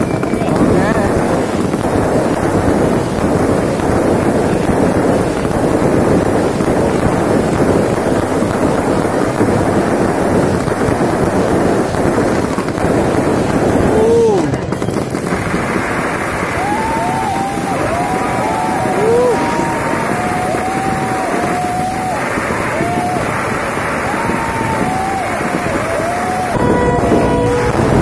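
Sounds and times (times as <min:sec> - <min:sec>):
fireworks going off: 0:00.0 - 0:28.0.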